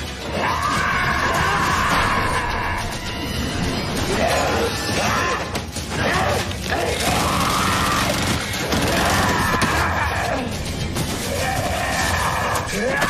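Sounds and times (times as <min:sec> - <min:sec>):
music: 0:00.0 - 0:13.0
people screaming and yelling: 0:00.0 - 0:13.0.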